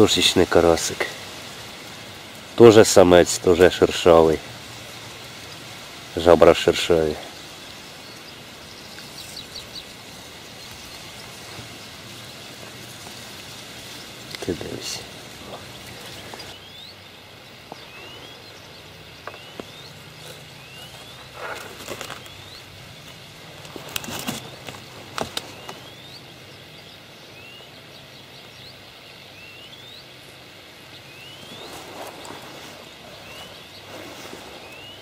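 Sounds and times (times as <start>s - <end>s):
outdoor background noise: 0.0s - 35.0s
fishing tackle clicks and rustles: 23.0s - 25.8s.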